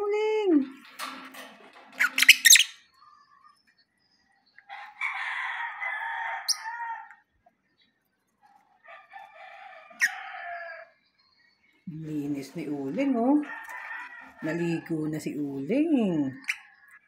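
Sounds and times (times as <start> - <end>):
rooster crowing: 4.7 - 7.2, 8.9 - 11.0.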